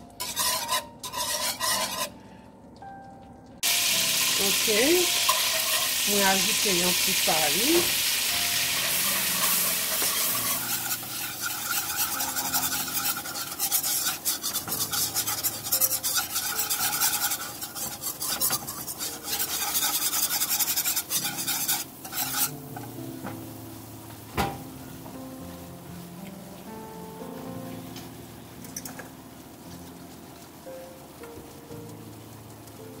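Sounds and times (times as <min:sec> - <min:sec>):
roux sizzling: 0:00.0 - 0:33.0
whisk scraping a pan: 0:00.1 - 0:02.2, 0:03.8 - 0:23.0.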